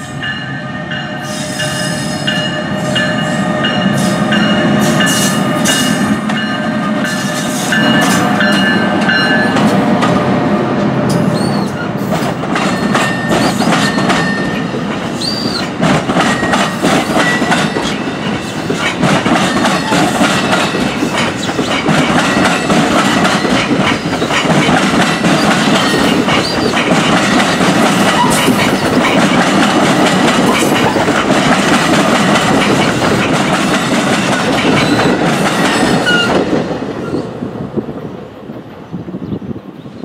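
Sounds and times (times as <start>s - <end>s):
train wheels clattering over rail joints: 11.4s - 36.7s.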